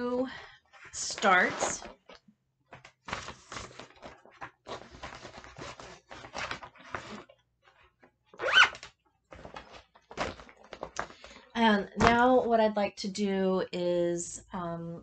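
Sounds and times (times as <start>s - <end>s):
craft supplies rustling and scraping: 0.7s - 8.1s, 9.3s - 11.4s.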